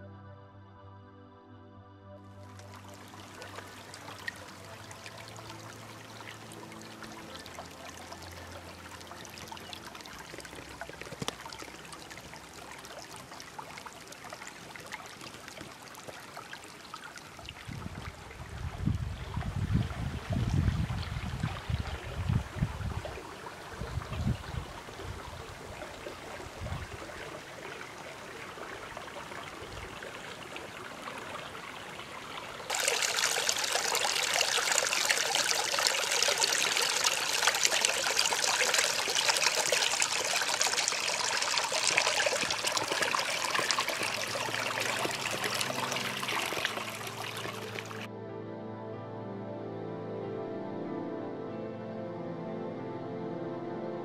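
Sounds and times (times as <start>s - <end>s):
soft music: 0.0s - 15.8s, 32.7s - 54.0s
creek trickling over stones: 2.4s - 48.1s
wind on microphone: 17.6s - 27.4s.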